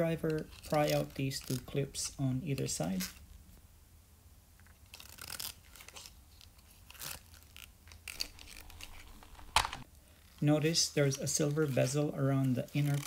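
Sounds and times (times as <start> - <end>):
screwdriver scraping plastic: 8.1 - 9.8
plastic clip click: 8.2 - 9.8.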